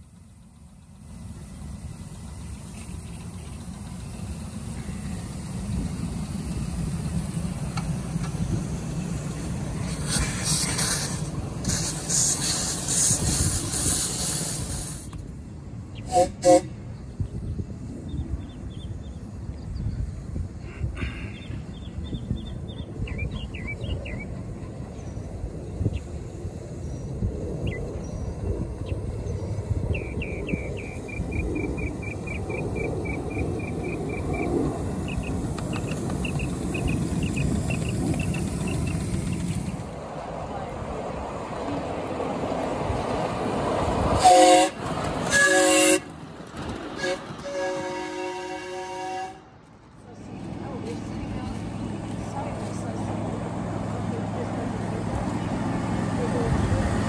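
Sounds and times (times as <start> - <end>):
steam hissing from cylinders: 0.0 - 15.4, 29.2 - 40.0, 44.0 - 46.1
steam locomotive rumble: 0.0 - 57.0
steam whistle toots: 16.1 - 16.7, 44.1 - 46.1, 47.0 - 49.4.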